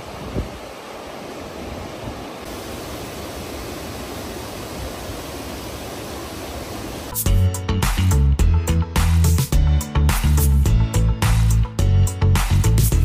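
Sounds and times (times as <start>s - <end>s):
river rushing over rocks: 0.0s - 7.1s
loud music with deep bass: 7.2s - 13.0s.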